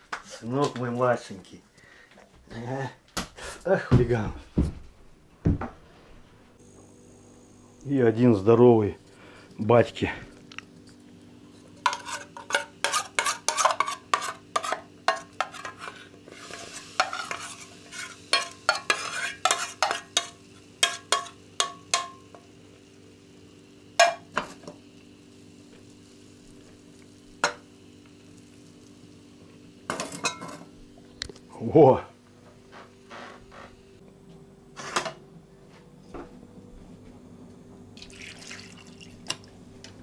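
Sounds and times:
low electrical hum: 0.0 - 40.0
utensil scraping in a pot: 11.4 - 21.4.

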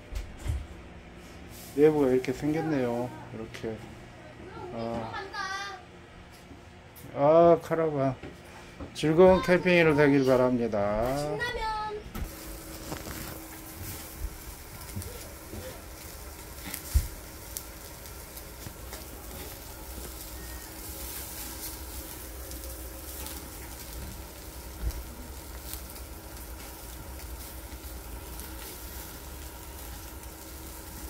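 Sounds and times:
meat sizzling on a grill: 1.2 - 3.4, 12.2 - 31.0
charcoal crackles: 1.2 - 3.8, 8.5 - 31.0
steady low rumble: 11.4 - 31.0.

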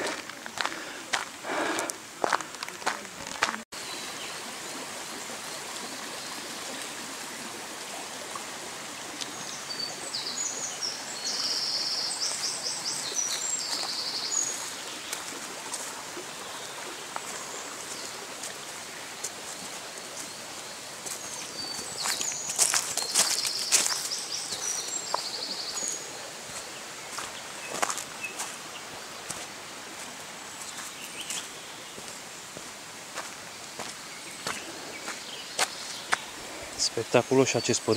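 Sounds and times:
stream running over rocks: 0.0 - 37.9
songbird chirping: 9.1 - 37.9.

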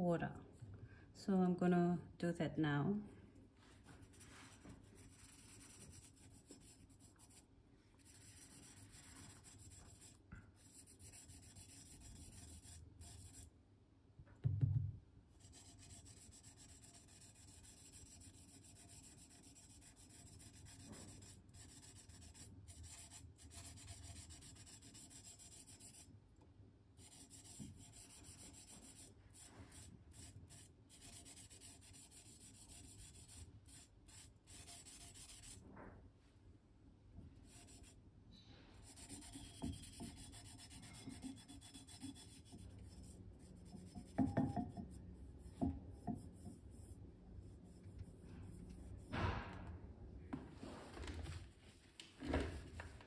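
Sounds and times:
sandpaper rubbing: 4.0 - 13.4, 15.4 - 26.1, 27.0 - 35.6, 37.4 - 38.0, 38.8 - 44.1
low thump: 49.0 - 49.8.

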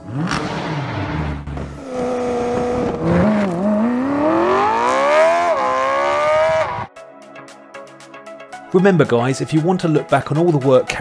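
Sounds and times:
car engine accelerating: 0.0 - 6.9.

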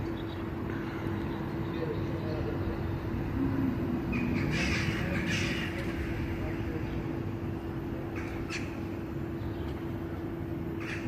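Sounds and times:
steady low hum: 0.0 - 11.0
crow cawing: 4.1 - 6.2, 8.1 - 8.9, 10.8 - 11.0.

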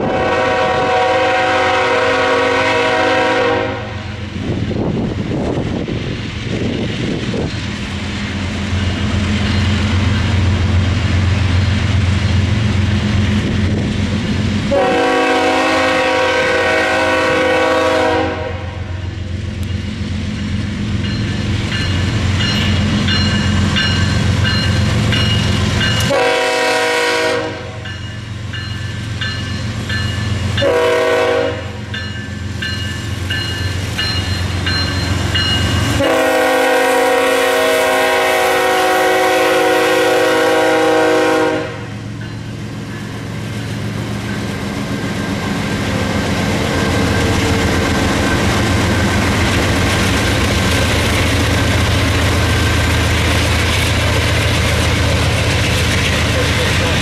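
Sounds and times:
locomotive air horn blasts: 0.0 - 4.2, 14.7 - 18.9, 26.0 - 27.8, 30.6 - 31.9, 35.8 - 42.0
train wheels rumbling: 0.0 - 57.0.

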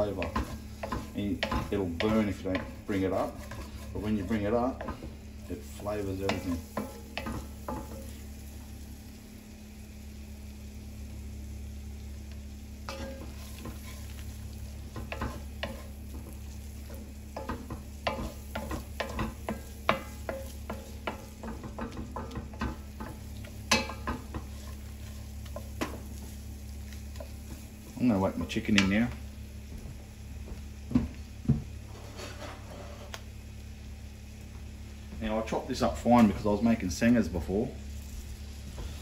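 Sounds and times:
spatula scraping pan: 0.0 - 8.2, 12.9 - 26.3, 31.9 - 33.2
onions sizzling in pan: 0.0 - 39.0.

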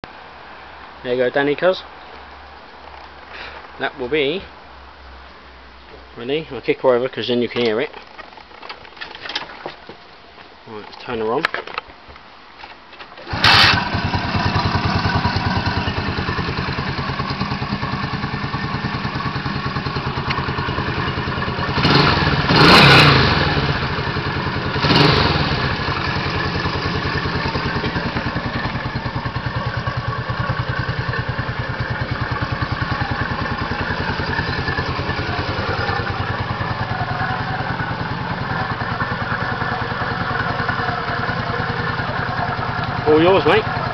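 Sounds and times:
motorcycle engine starting and idling: 13.2 - 43.9
motorcycle engine revving: 13.3 - 43.9.

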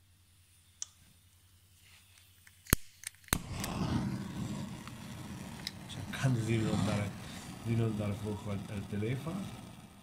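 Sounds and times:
torch igniter clicks: 2.2 - 9.2
gas flame catching with a pop: 2.7 - 10.0
gas flame hissing: 3.3 - 10.0.

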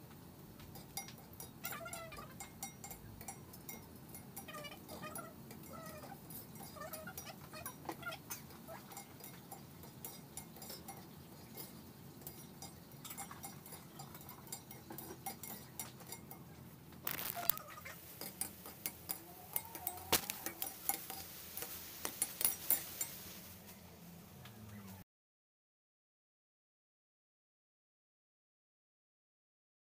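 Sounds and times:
kitchen clicks and clinks: 0.6 - 23.6.

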